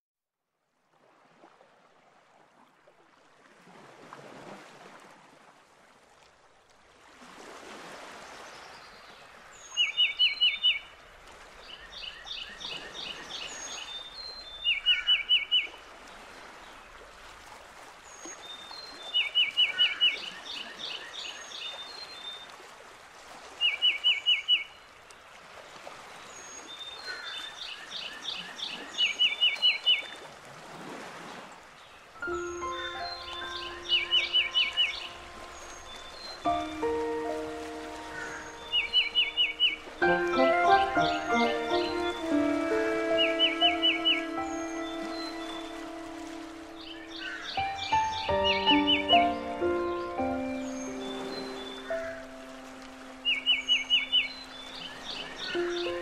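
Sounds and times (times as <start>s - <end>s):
rushing water: 0.7s - 56.0s
birds calling: 32.2s - 52.4s
thin bird chirps: 32.3s - 36.4s.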